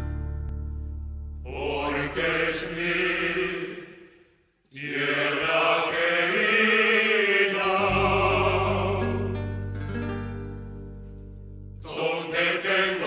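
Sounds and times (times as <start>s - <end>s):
choir singing held chords: 1.4s - 9.6s, 11.8s - 13.0s.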